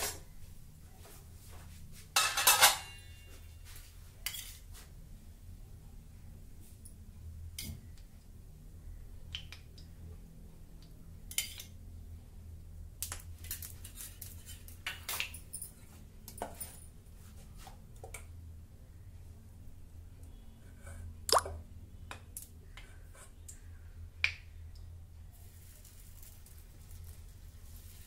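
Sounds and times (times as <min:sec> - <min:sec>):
low steady hum: 0:00.0 - 0:28.0
metal utensil clinking on pans: 0:02.2 - 0:03.3.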